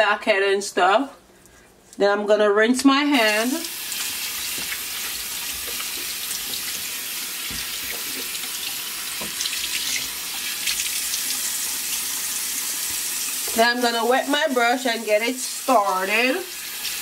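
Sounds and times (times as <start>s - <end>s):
tap water running into sink: 3.2s - 14.7s, 15.6s - 17.0s.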